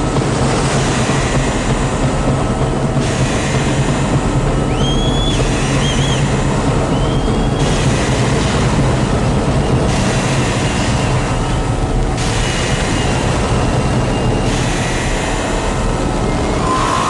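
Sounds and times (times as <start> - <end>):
mechanical rumble: 0.0 - 17.0
high whistle: 4.7 - 6.3, 6.9 - 7.6, 16.4 - 17.0.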